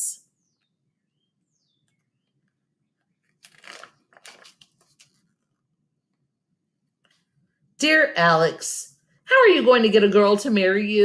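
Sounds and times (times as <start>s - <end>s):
book page turning: 3.2s - 5.5s.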